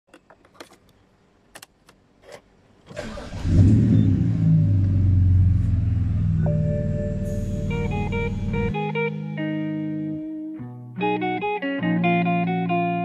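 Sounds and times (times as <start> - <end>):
car engine starting and idling: 2.8 - 9.5.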